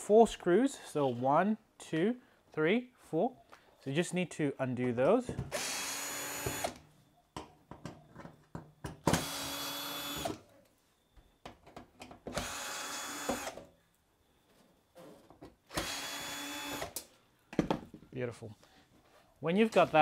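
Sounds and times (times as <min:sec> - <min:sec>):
cordless drill driving screws: 0:05.5 - 0:06.8, 0:09.1 - 0:10.4, 0:12.3 - 0:13.6, 0:15.7 - 0:17.0.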